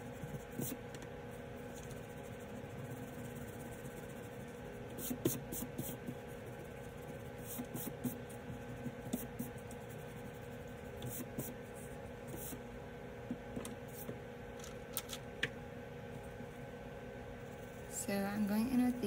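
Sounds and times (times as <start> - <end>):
eraser rubbing on paper: 0.2 - 0.8, 1.7 - 12.6.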